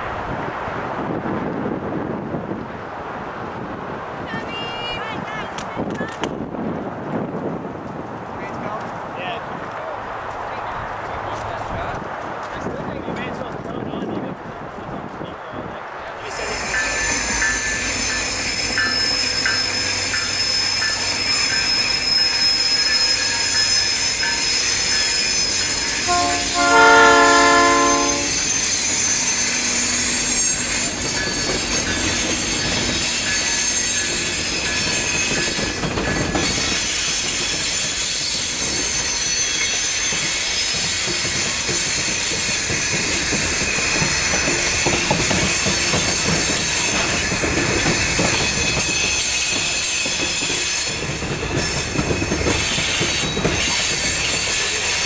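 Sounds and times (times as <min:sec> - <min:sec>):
freight train passing: 0:00.0 - 0:55.0
train wheel squeal: 0:16.2 - 0:55.0
locomotive air horn: 0:26.0 - 0:28.5.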